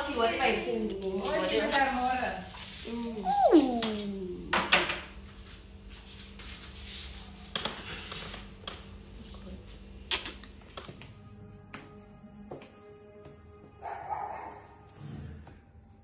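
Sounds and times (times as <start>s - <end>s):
low steady hum: 0.0s - 5.6s.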